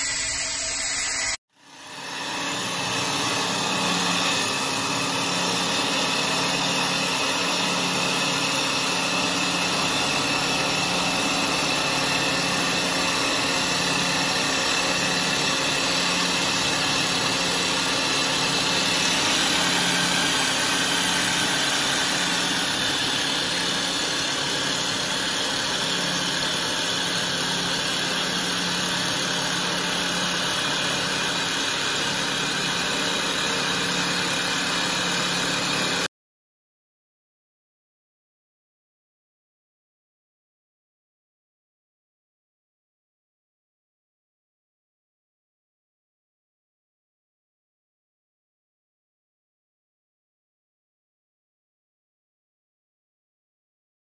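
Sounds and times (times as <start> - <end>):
wood lathe drone: 0.0 - 36.1.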